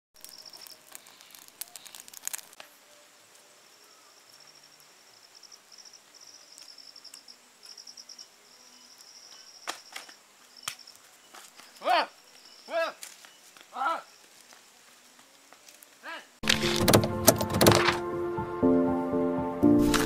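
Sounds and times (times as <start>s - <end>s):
sharp crackles: 0.2s - 3.5s, 9.6s - 18.0s
insects chirping: 0.2s - 16.4s.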